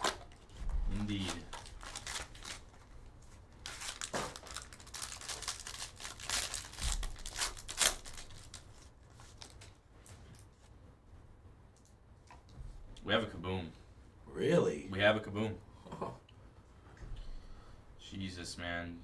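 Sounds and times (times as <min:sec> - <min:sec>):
foil wrapper crinkling and tearing: 0:00.0 - 0:02.8, 0:03.6 - 0:09.7.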